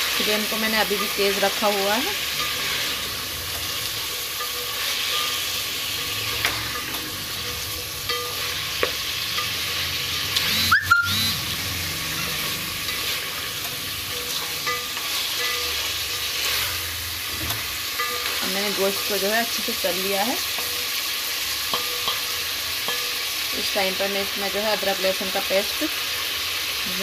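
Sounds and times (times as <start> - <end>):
spatula clatter: 0.0 - 10.4, 12.1 - 23.4
meat sizzling in oil: 0.0 - 27.0.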